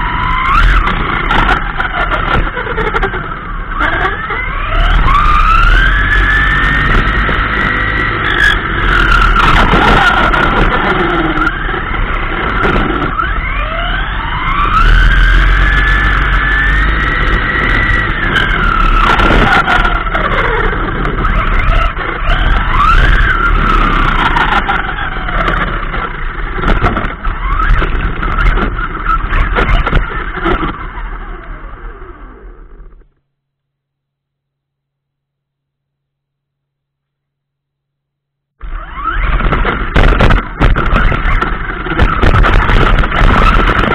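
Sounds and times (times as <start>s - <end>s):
electric motor whining: 0.0s - 33.0s, 38.6s - 43.9s
tyre and road noise: 0.0s - 33.2s, 38.6s - 43.9s.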